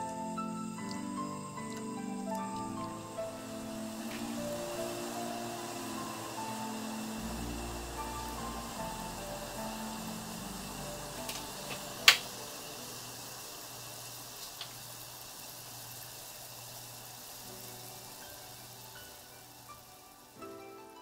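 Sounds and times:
wine bubbling in saucepan: 0:00.0 - 0:21.0.

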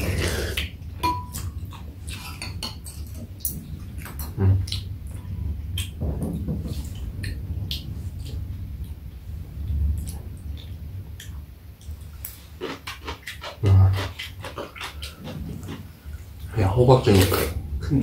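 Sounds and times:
chewing sounds: 0:00.0 - 0:06.0, 0:11.2 - 0:16.5.

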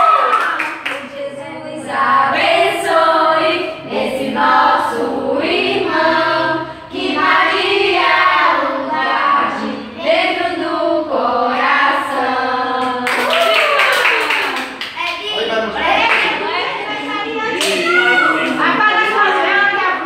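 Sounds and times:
group singing: 0:01.2 - 0:13.5.

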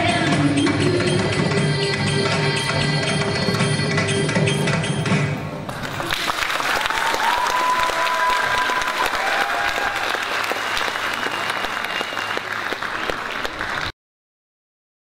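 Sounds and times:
crowd of children clapping: 0:05.7 - 0:14.0
high-pitched shouts: 0:06.8 - 0:10.2.

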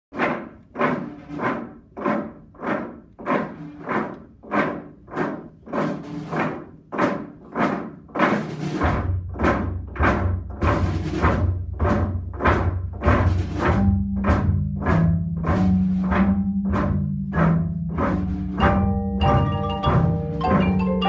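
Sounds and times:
low timpani roll: 0:00.2 - 0:21.0
struck ringing percussion notes: 0:13.5 - 0:21.0.

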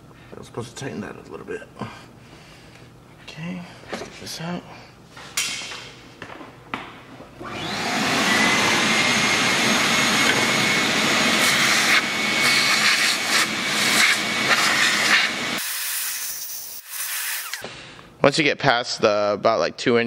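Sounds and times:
shop vacuum running: 0:05.7 - 0:18.0.

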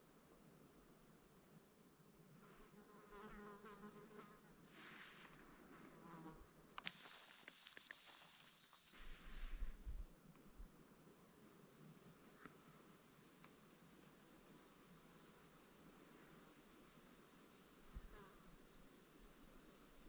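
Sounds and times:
faint whistle with falling trill: 0:06.8 - 0:09.0
loud high whistle lure: 0:06.8 - 0:09.0.

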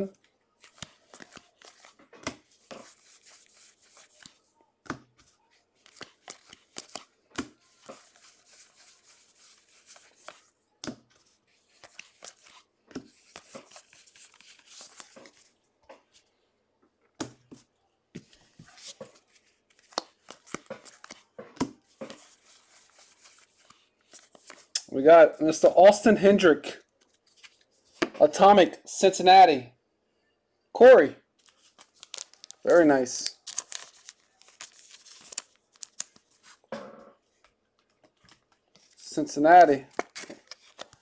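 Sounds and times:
cards flipping and snapping: 0:00.6 - 0:05.0, 0:05.8 - 0:08.6, 0:11.7 - 0:15.5, 0:18.7 - 0:24.9, 0:31.4 - 0:32.6, 0:33.2 - 0:36.6, 0:39.9 - 0:41.0.

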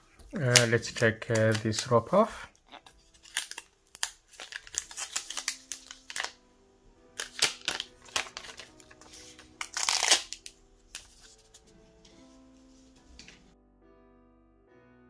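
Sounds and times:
soft background music: 0:00.0 - 0:15.0
plastic film crackling: 0:00.2 - 0:06.4, 0:07.1 - 0:12.1.

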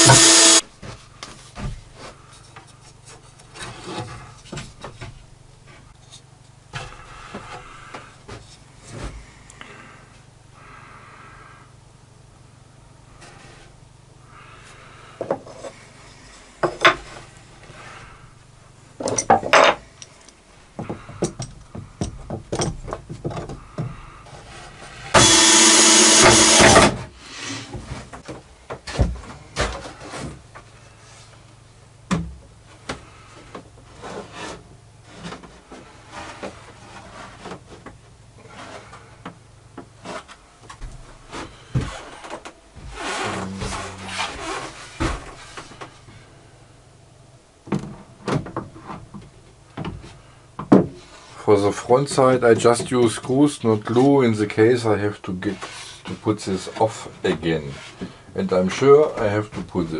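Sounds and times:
power tool burst: 0:00.0 - 0:00.6, 0:25.2 - 0:27.0
wood rubbing on wood: 0:00.0 - 0:00.6, 0:23.6 - 0:27.7, 0:41.5 - 0:45.8.

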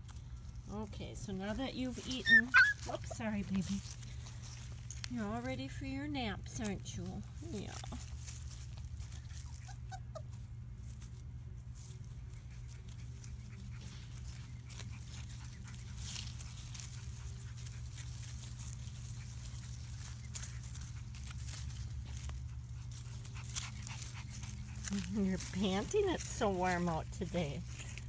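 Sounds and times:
puppies snuffling: 0:00.0 - 0:28.0
rustling in grass: 0:00.0 - 0:28.0
steady low hum: 0:00.0 - 0:28.0
puppy squeaks: 0:02.0 - 0:03.1, 0:09.2 - 0:10.4.

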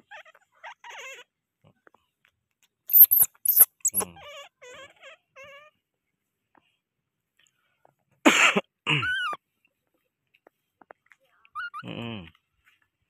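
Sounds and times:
baby monkey squeaky calls: 0:02.9 - 0:04.0.

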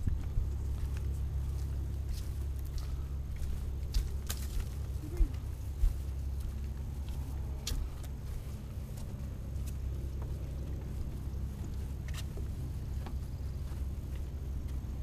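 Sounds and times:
wind buffeting microphone: 0:00.0 - 0:09.4.

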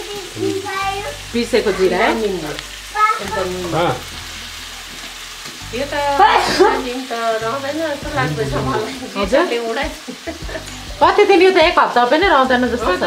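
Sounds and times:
food sizzling in a wok: 0:00.0 - 0:13.0
person speaking: 0:06.2 - 0:09.3.

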